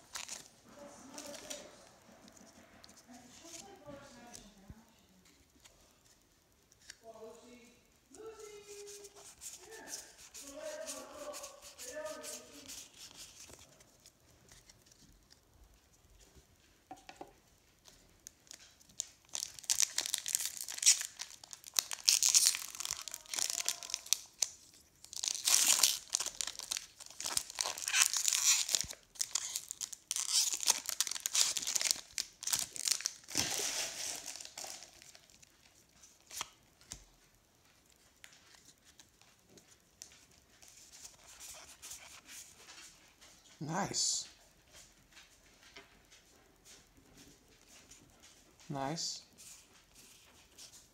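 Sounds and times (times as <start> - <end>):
foil wrapper tearing and crinkling: 18.4 - 35.5.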